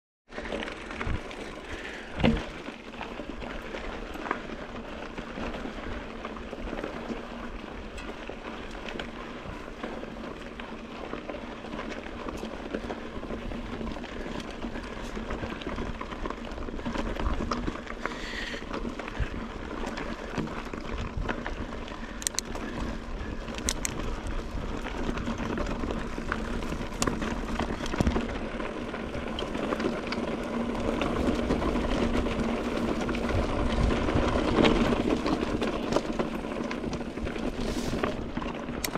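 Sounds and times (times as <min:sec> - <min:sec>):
bike rattling and knocking: 0:00.3 - 0:38.9
bike tyres crunching on gravel: 0:00.3 - 0:38.9.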